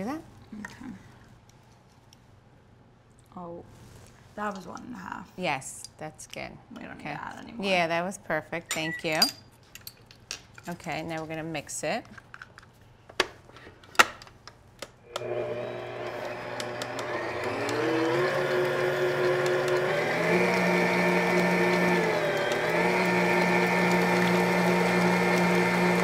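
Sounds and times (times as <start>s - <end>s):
stand mixer motor whining: 15.1s - 26.0s.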